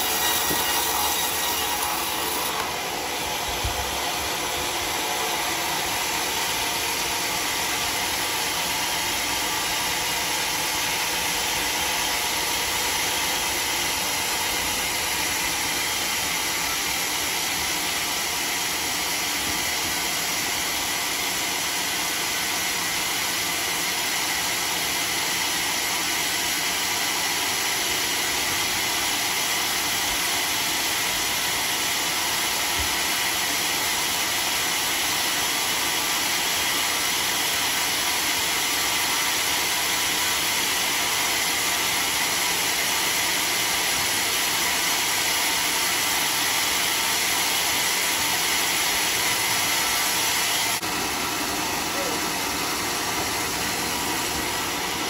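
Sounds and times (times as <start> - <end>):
sawmill machinery whirring: 0.0 - 55.0.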